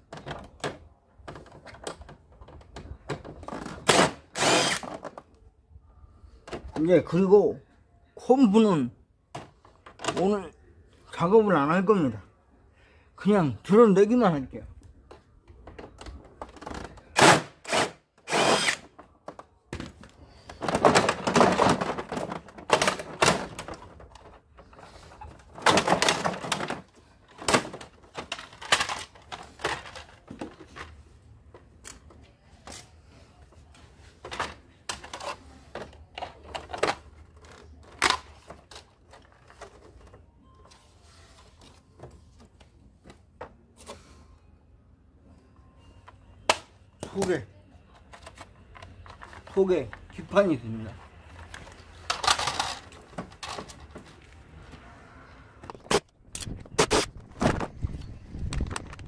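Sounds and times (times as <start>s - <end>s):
plastic panels clicking and knocking: 0.0s - 3.9s
cordless drill running: 4.4s - 4.8s, 17.7s - 18.8s.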